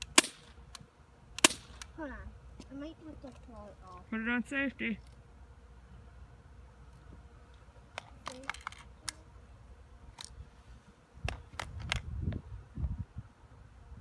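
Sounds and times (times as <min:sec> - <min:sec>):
pistol clicks: 0:01.4 - 0:01.9.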